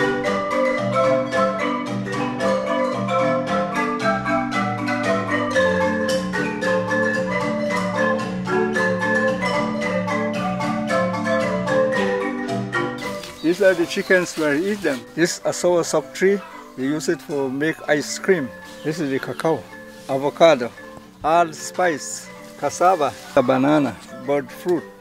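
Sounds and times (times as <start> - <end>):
marimba played with mallets: 0.0 - 25.0.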